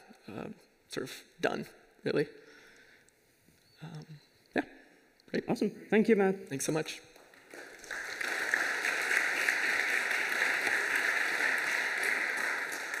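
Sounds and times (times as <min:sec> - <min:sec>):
audience applauding: 0:07.2 - 0:13.0.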